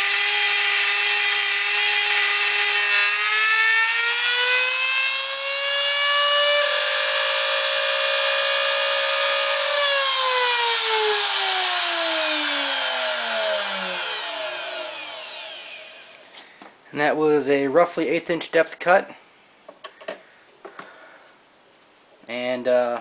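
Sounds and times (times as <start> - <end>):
mill spindle motor whining: 0.0 - 16.3.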